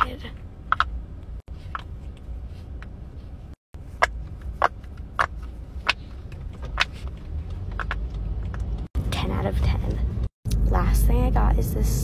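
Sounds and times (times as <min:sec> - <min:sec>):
low car rumble: 0:00.2 - 0:12.0.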